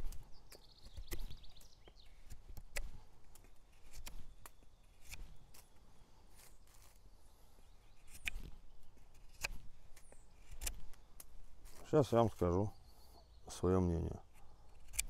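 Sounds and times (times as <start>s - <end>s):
knife scraping wood: 2.2s - 5.7s, 14.3s - 15.0s.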